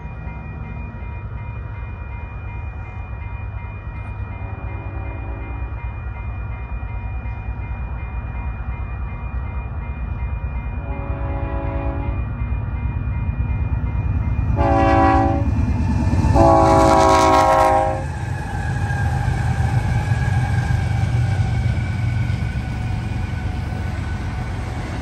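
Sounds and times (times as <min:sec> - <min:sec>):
train rumbling: 0:00.0 - 0:25.0
faint locomotive horn: 0:04.4 - 0:05.8, 0:10.8 - 0:12.2, 0:14.6 - 0:15.6, 0:16.2 - 0:18.1.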